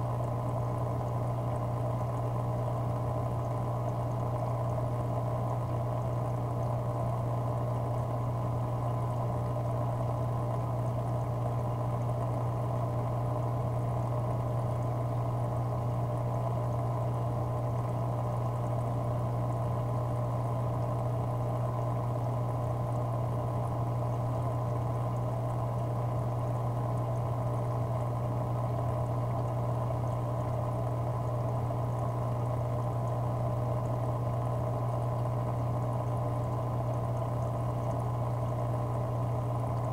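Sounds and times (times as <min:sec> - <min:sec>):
aquarium pump humming: 0:00.0 - 0:39.9
water bubbling and trickling: 0:23.6 - 0:39.9.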